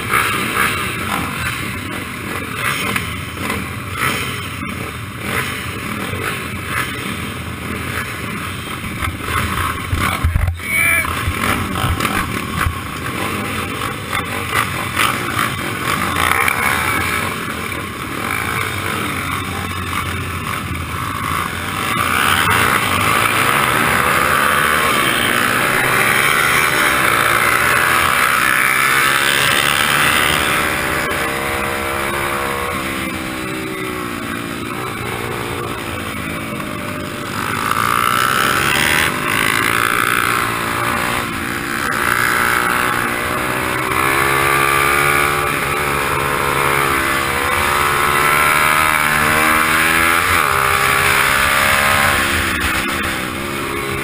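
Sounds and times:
small motorbike engines idling: 0.0s - 27.6s, 31.0s - 43.1s
motorbike engine accelerating: 0.0s - 54.0s.

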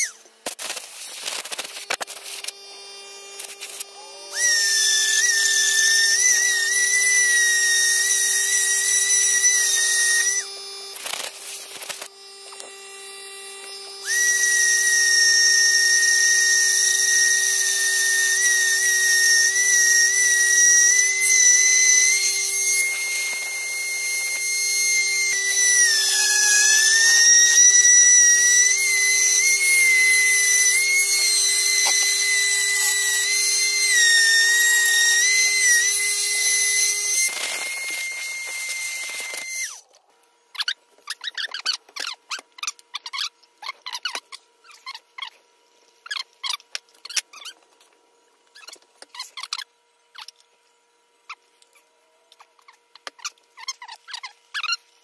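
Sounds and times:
rotary carving tool grinding wood: 0.0s - 39.9s.

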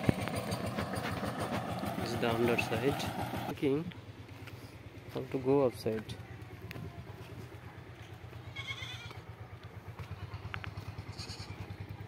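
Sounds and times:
bleating animal call: 8.4s - 9.2s, 11.0s - 11.7s.

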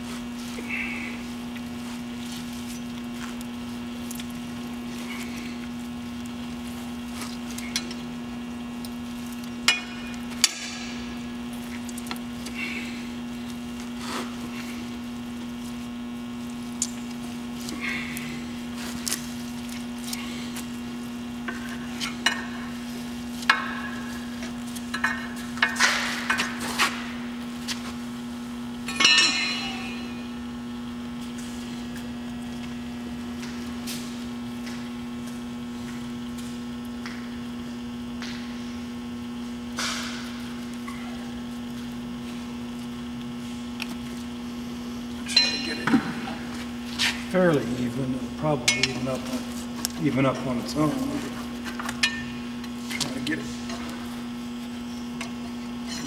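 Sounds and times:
steady low hum: 0.0s - 56.0s
wet squishing: 11.3s - 22.2s
metal tool clinking and scraping: 28.9s - 30.2s, 45.3s - 46.0s.

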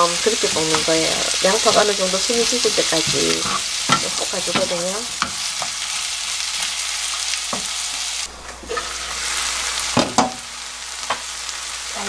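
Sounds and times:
onions sizzling in oil: 0.0s - 12.0s
spatula knocking on a pan: 2.9s - 5.8s.

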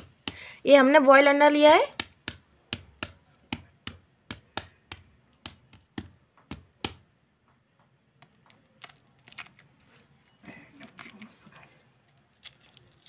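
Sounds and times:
egg tapping on hard floor: 1.6s - 9.0s.

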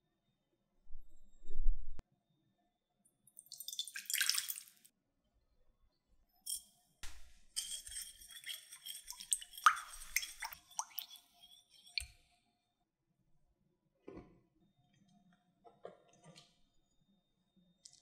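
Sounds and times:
water pouring into glass bowl: 3.4s - 4.8s, 7.6s - 12.1s
spatula stirring and scraping: 6.5s - 12.3s
spatula clinking on glass bowl: 7.6s - 12.1s.

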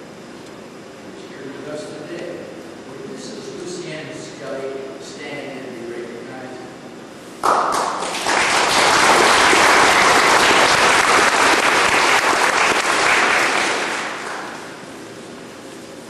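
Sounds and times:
audience applauding: 7.4s - 14.8s.

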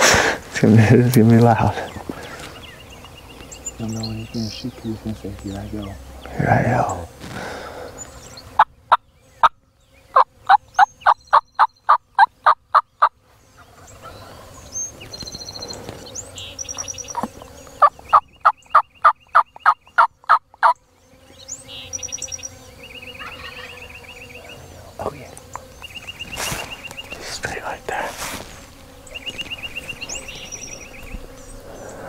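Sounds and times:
turkey yelping: 23.2s - 23.8s.

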